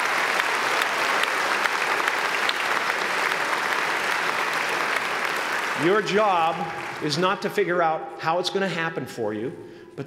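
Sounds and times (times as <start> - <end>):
large audience applauding: 0.0 - 7.6.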